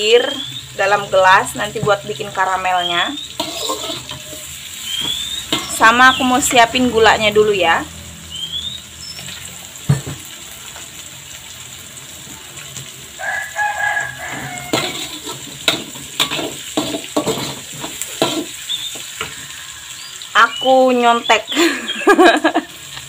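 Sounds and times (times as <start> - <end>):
food frying in oil: 0.0 - 23.0
spatula scraping a wok: 3.3 - 6.6, 14.1 - 19.9
rooster crowing: 13.1 - 15.3.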